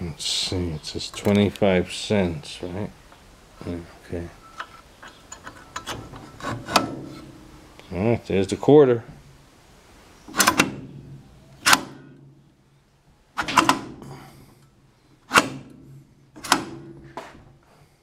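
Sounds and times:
metallic clunks of coin slide: 0:04.5 - 0:07.6, 0:10.3 - 0:12.4, 0:13.4 - 0:17.2.

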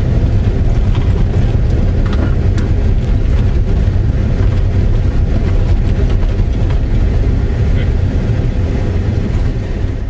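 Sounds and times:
engine and tyres rumbling: 0:00.0 - 0:10.0
faint rattles and knocks: 0:00.4 - 0:07.2.

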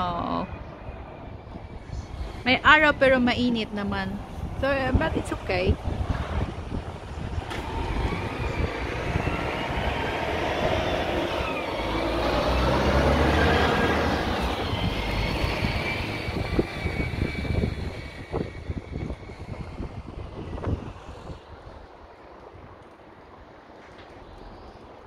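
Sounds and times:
faint gliding whine: 0:00.0 - 0:25.0
distant engine passing by: 0:06.0 - 0:22.0.

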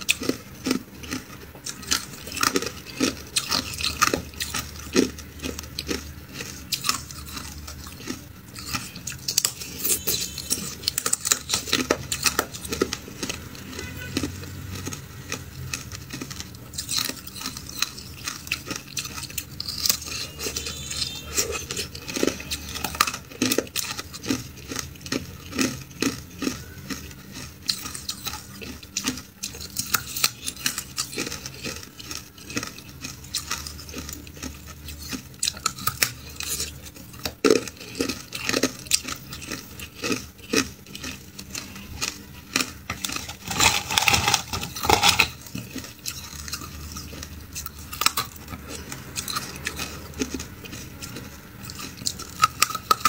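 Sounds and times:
ice crunching: 0:42.0 - 0:46.7
ice chunks clinking: 0:42.0 - 0:48.4.

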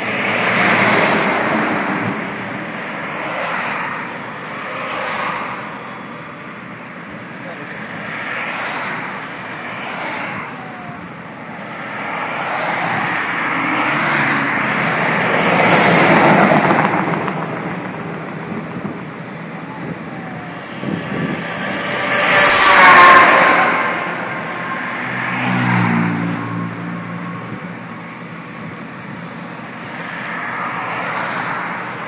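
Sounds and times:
trucks passing: 0:00.0 - 0:32.0
car passing: 0:07.4 - 0:27.5, 0:29.8 - 0:32.0.

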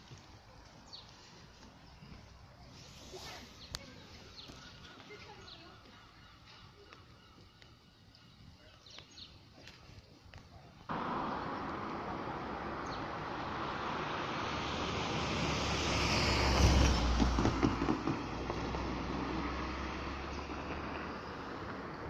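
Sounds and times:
road traffic noise: 0:10.9 - 0:22.0
vehicle passing with deep rumble: 0:10.9 - 0:22.0.

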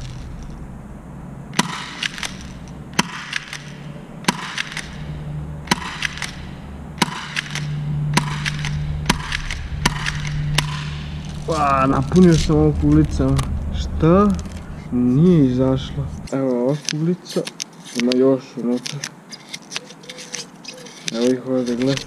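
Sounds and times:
airsoft pistol shots: 0:01.5 - 0:11.0.

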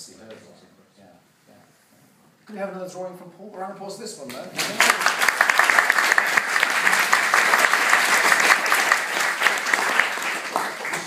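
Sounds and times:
audience applauding: 0:04.6 - 0:11.0.

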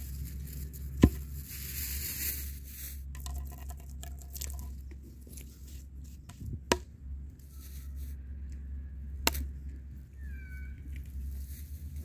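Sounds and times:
light crackling and rustling: 0:00.0 - 0:06.4.

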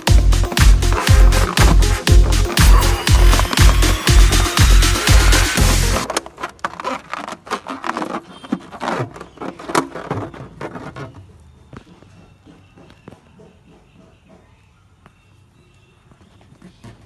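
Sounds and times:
music: 0:00.0 - 0:06.1
rubber balloon taps and scrapes: 0:06.0 - 0:11.3.

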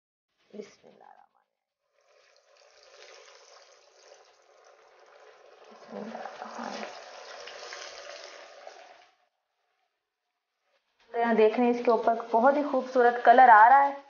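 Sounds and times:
donuts sizzling in deep fryer: 0:01.8 - 0:09.3.

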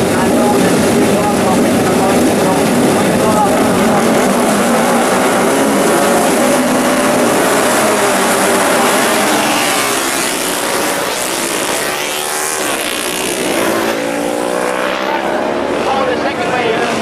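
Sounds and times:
racing motorcycles revving: 0:00.0 - 0:17.0.

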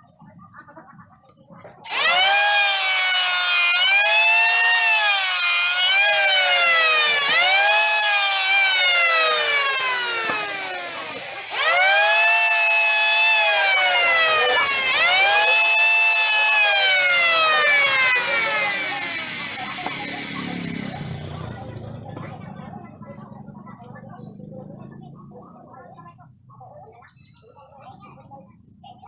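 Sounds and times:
electric hand planer whining: 0:01.9 - 0:21.4.

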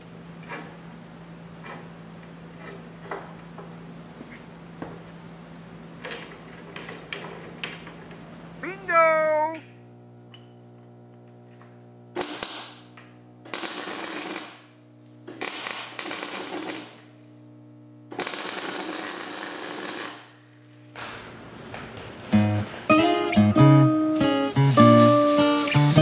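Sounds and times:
welding crackle: 0:13.4 - 0:14.7, 0:15.3 - 0:17.1, 0:18.1 - 0:20.3
steady low hum: 0:17.0 - 0:18.2.

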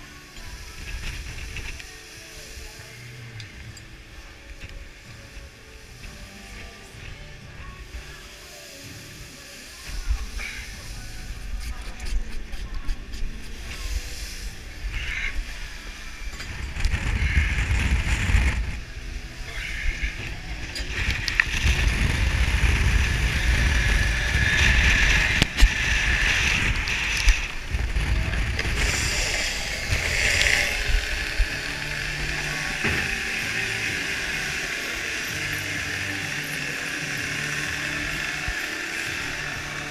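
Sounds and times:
boat engine running: 0:00.0 - 0:39.9
hydraulic block hum: 0:13.6 - 0:39.9
wind buffeting microphone: 0:14.6 - 0:33.2.

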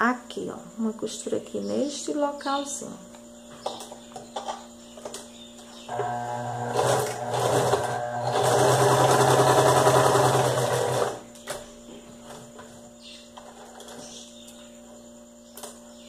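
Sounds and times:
sewing machine stitching: 0:05.9 - 0:11.2.

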